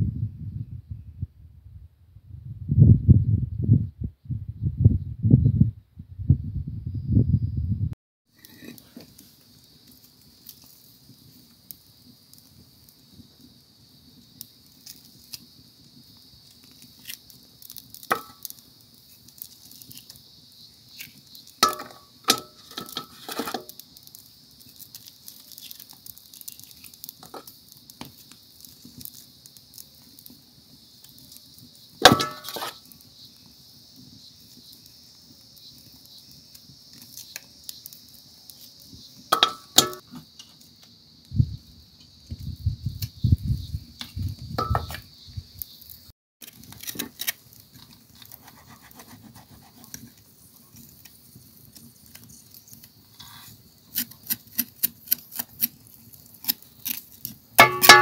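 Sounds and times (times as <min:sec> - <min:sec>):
knife scraping over metal basin: 0:32.1 - 0:32.8
clinks and knocks against metal: 0:39.3 - 0:40.0, 0:57.6 - 0:58.0.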